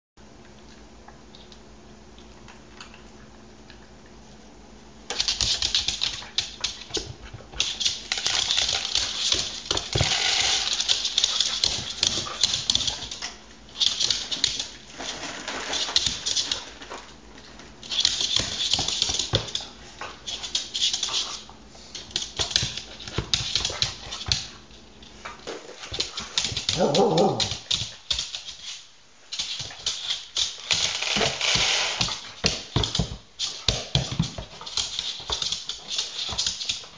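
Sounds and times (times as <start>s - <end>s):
dog claws clicking on hardwood: 25.8s - 28.7s
dog whine: 26.8s - 27.6s.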